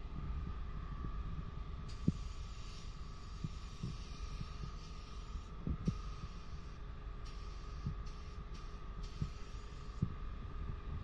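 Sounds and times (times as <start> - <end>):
spray gun air hiss: 1.9 - 10.1.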